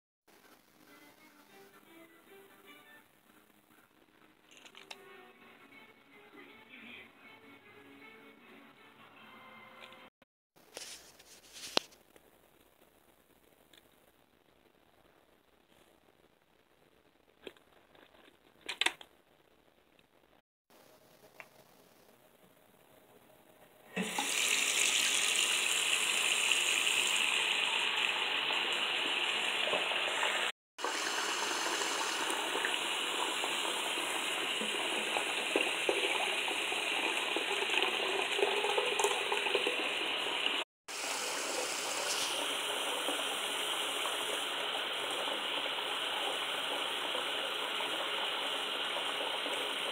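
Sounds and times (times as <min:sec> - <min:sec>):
faucet running into sink: 0:24.0 - 0:49.9
water running into plastic bottle: 0:30.8 - 0:43.3.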